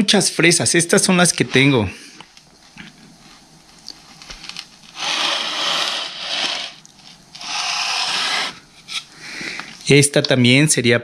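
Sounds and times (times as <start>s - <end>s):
crinkly rustling: 2.3s - 7.4s.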